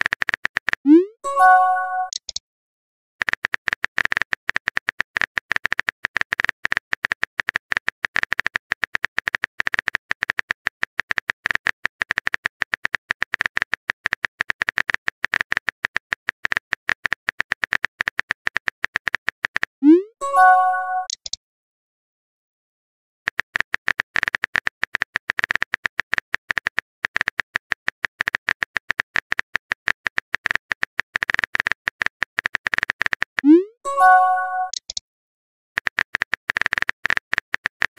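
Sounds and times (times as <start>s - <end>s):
keyboard typing clicks: 0.0s - 2.4s, 18.5s - 21.4s, 31.2s - 35.0s
message sent chime: 0.9s - 2.2s, 20.0s - 21.1s, 33.5s - 34.8s.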